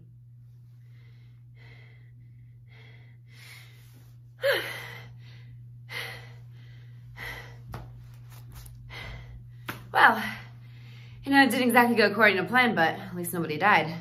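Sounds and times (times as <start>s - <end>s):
steady low hum: 0.0s - 14.0s
woman breathing hard and gasping: 0.8s - 11.2s.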